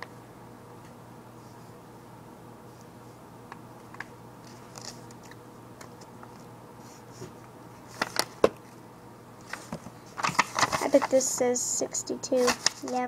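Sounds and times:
paper clicks and rustles: 4.4 - 6.4, 7.9 - 8.4, 9.4 - 11.2, 12.4 - 13.0.

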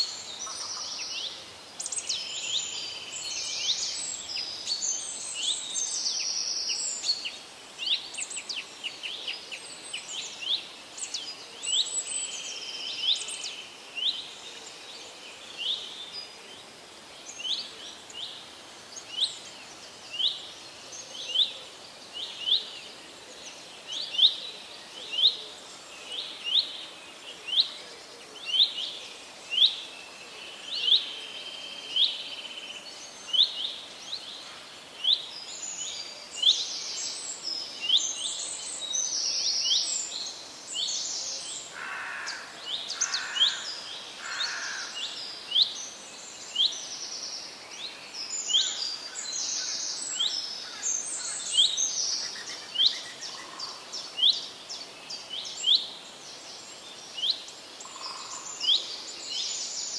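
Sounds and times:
birds twittering: 40.8 - 55.8, 56.6 - 59.9.

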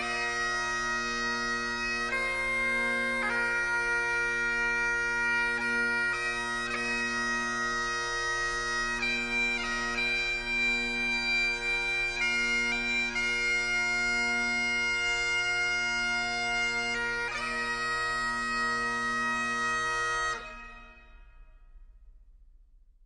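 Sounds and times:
bagpipes playing slow tune: 0.0 - 21.7.

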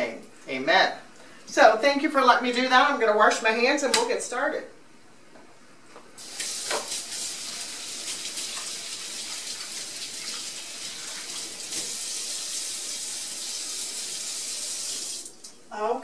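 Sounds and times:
faucet running into sink: 6.2 - 15.5.

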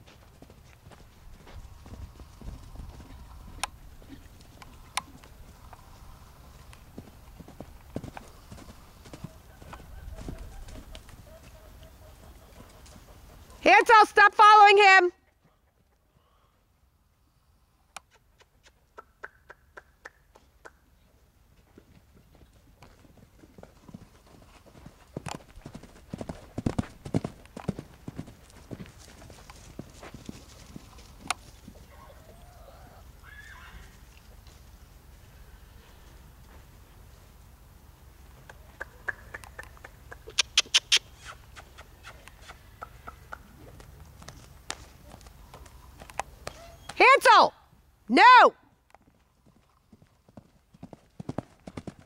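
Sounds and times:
horse hoofbeats on sand: 0.0 - 5.6, 6.5 - 11.6, 21.7 - 31.9, 49.0 - 52.0.

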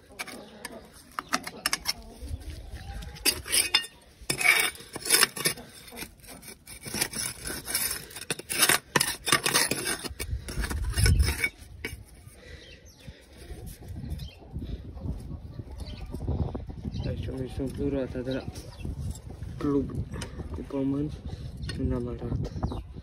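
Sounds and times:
tool scraping metal: 3.2 - 12.1.

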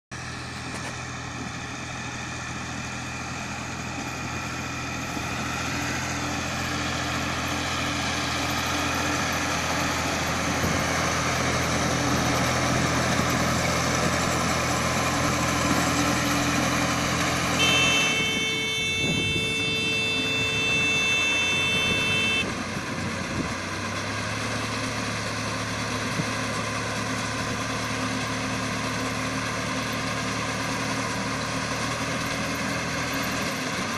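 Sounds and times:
hay baler machinery: 0.2 - 17.6
tractor engine running: 0.2 - 33.9
steady high-pitched tone: 17.6 - 22.4.

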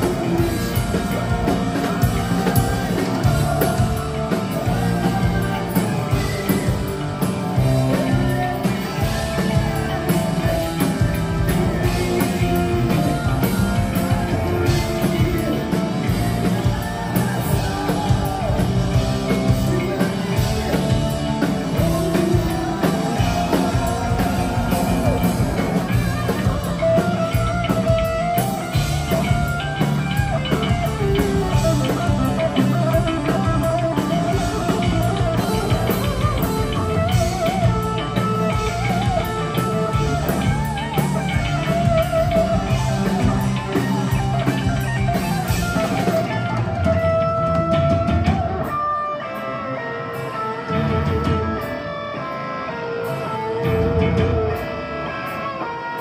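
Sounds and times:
bass guitar: 0.0 - 56.0
distorted electric guitars: 0.0 - 56.0
drum kit: 0.0 - 56.0.

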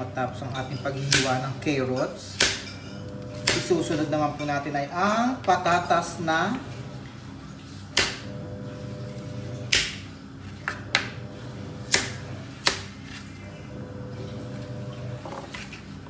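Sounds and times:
knife chopping potatoes: 0.6 - 2.8, 3.4 - 4.0, 7.9 - 8.3, 9.7 - 10.0, 11.8 - 13.2.

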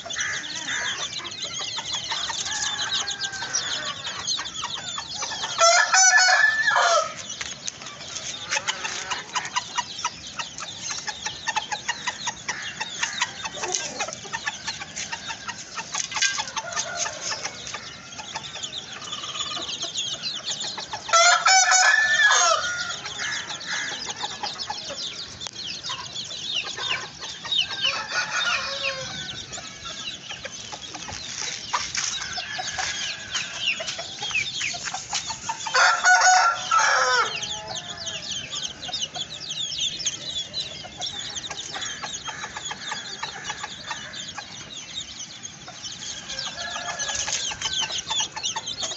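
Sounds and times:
chickens clucking: 0.0 - 48.9
rooster crowing: 2.2 - 4.2, 5.5 - 7.2, 21.1 - 24.0, 27.7 - 30.0, 35.7 - 38.7, 46.1 - 48.0.

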